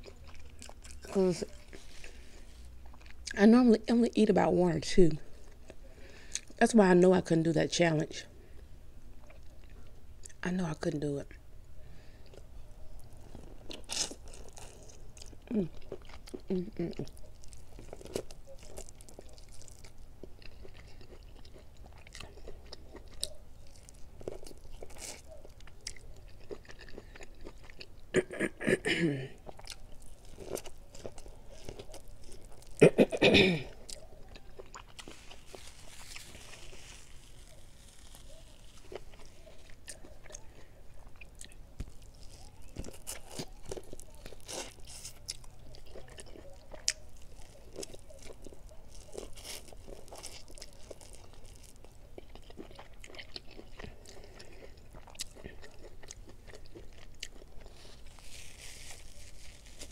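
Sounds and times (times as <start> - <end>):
chewing corn on the cob: 0.0 - 3.4, 12.2 - 28.4, 29.3 - 33.0, 33.6 - 59.9.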